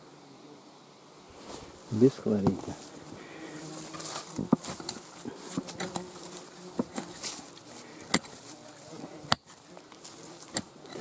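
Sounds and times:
insect buzzing: 0:00.0 - 0:11.0
digging tool striking soil: 0:08.0 - 0:08.5, 0:09.2 - 0:09.6, 0:10.4 - 0:11.0.

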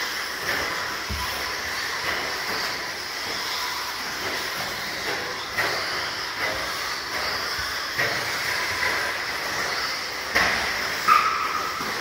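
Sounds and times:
rc truck motors whining: 0:00.0 - 0:12.0.

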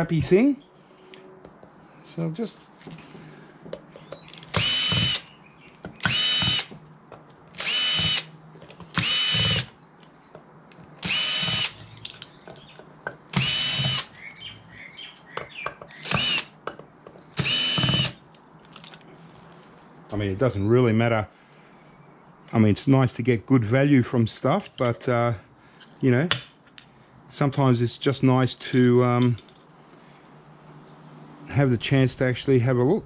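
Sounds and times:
power drill whining: 0:04.4 - 0:05.3, 0:06.0 - 0:06.8, 0:07.6 - 0:08.3, 0:08.9 - 0:09.7, 0:11.0 - 0:11.8, 0:13.3 - 0:14.2, 0:15.9 - 0:16.5, 0:17.4 - 0:18.2.

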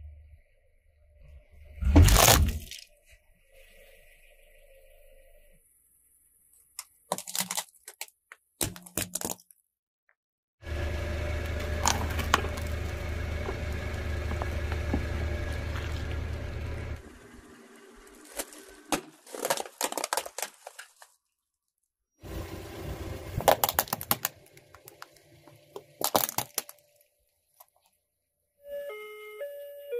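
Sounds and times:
plastic parts cracking and snapping: 0:01.9 - 0:02.8, 0:06.8 - 0:09.6, 0:11.7 - 0:12.7, 0:18.3 - 0:21.2, 0:23.4 - 0:26.9
plastic wrap crackling: 0:07.1 - 0:09.5, 0:18.2 - 0:21.3, 0:23.4 - 0:25.2, 0:25.8 - 0:27.0
low hum with ringing tones: 0:10.7 - 0:18.4.

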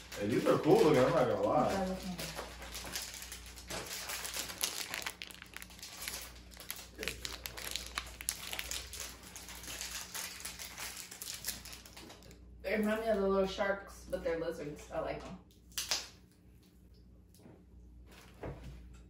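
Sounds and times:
plastic wrappers crinkling: 0:00.0 - 0:12.4.

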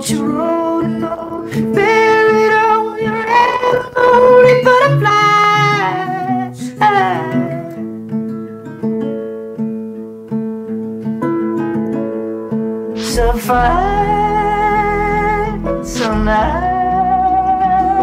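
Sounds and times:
person singing long notes: 0:00.0 - 0:07.8, 0:13.0 - 0:18.0
acoustic guitar: 0:00.0 - 0:18.0.

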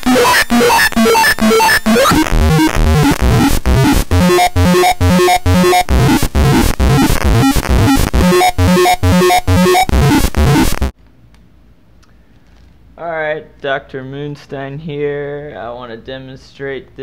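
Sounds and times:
buzzy synthesizer notes: 0:00.0 - 0:10.9.

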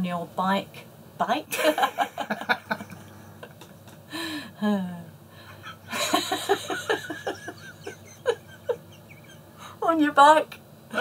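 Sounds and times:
man and woman laughing: 0:01.5 - 0:04.4, 0:05.6 - 0:09.7.

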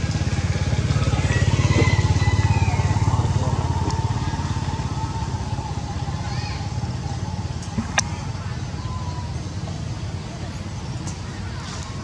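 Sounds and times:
small engine puttering: 0:00.0 - 0:09.0.

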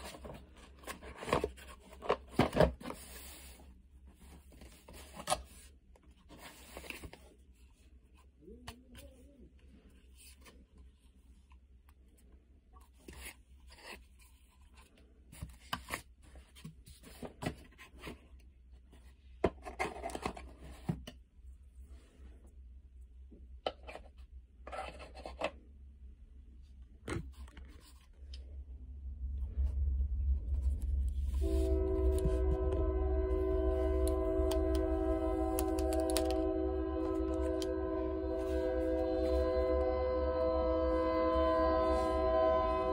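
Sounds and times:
steady low hum: 0:25.6 - 0:42.9.

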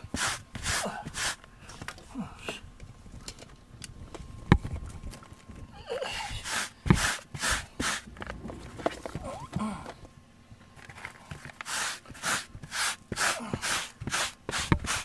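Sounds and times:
brush scraping carpet: 0:00.0 - 0:01.4, 0:06.2 - 0:09.0, 0:11.3 - 0:15.0.

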